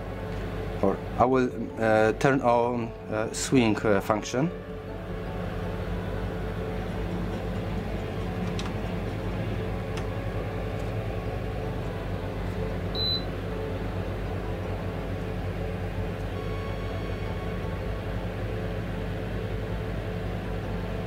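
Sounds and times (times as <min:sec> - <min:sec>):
fan heater blower humming: 0:00.0 - 0:21.0
short electronic beep: 0:13.0 - 0:13.3.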